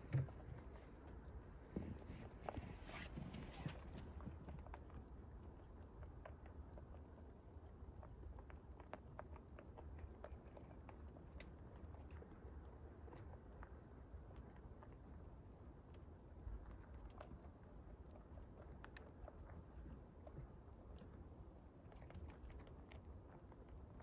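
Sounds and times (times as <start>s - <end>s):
rabbits chewing: 0.0s - 24.0s.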